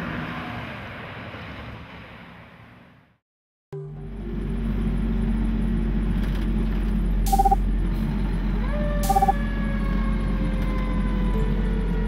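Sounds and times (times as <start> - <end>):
fire truck engine rumble: 4.1 - 12.0
siren winding down: 7.3 - 7.6, 8.8 - 11.6.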